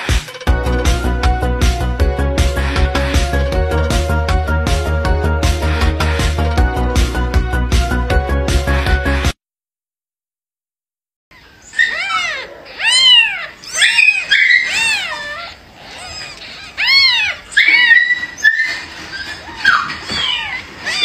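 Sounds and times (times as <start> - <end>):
music: 0.0 - 9.4
newborn kittens mewing: 11.7 - 21.0.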